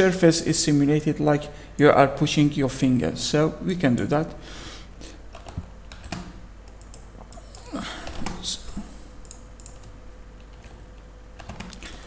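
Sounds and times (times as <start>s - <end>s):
low steady hum: 0.0s - 12.0s
keyboard and mouse clicks: 5.3s - 7.4s, 8.0s - 11.9s.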